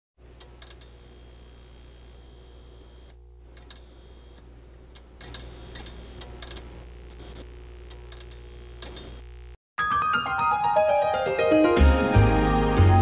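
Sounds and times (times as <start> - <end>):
low electronic hum: 0.2 - 9.6.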